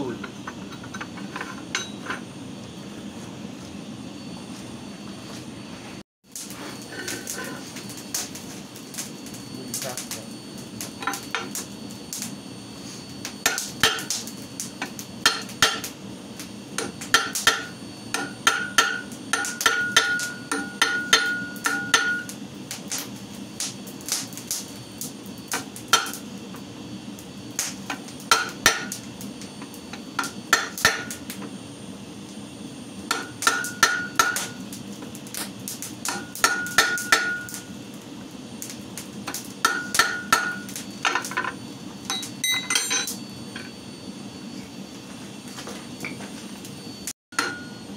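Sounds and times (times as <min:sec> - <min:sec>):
high metallic ring: 0:00.3 - 0:02.2, 0:16.8 - 0:22.4, 0:36.1 - 0:37.7, 0:39.6 - 0:43.8, 0:47.4 - 0:47.9
hammer striking chisel on metal: 0:01.7 - 0:02.0, 0:13.4 - 0:14.1, 0:15.2 - 0:15.9, 0:16.8 - 0:22.3, 0:25.9 - 0:26.2, 0:28.3 - 0:29.0, 0:30.2 - 0:31.1, 0:33.1 - 0:34.5, 0:36.1 - 0:37.6, 0:39.6 - 0:41.3, 0:47.4 - 0:47.8.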